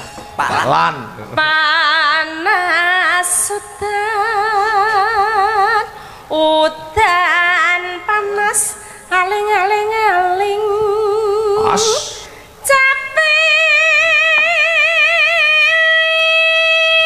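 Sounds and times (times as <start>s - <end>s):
woman singing with vibrato: 1.3s - 17.0s
singer drawing breath: 5.9s - 6.3s, 8.8s - 9.1s, 12.0s - 12.6s.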